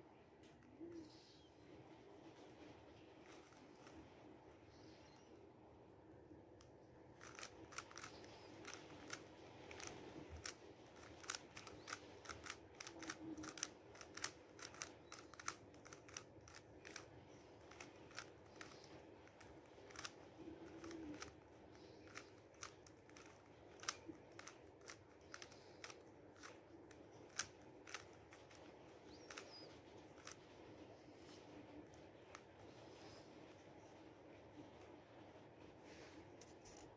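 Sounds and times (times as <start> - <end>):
puzzle cube clicking: 7.2 - 30.4.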